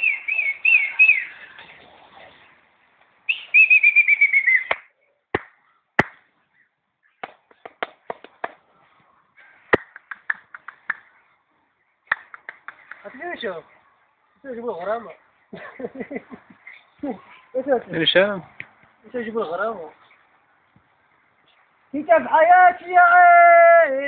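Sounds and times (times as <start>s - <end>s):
birds whistling: 0.0s - 1.6s, 3.3s - 4.8s.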